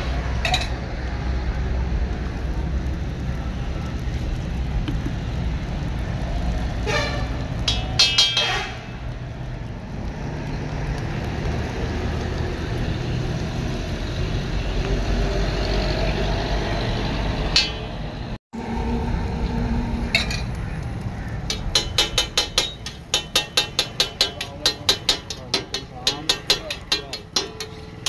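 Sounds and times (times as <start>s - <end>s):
metal blade clicking on griddle: 21.5s - 28.0s.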